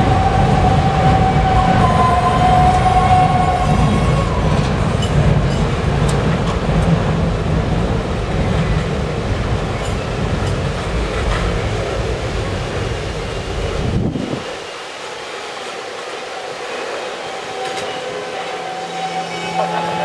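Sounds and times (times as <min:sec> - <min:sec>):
train wheels rumbling on rails: 0:00.0 - 0:20.0
high wheel squeal: 0:16.3 - 0:20.0.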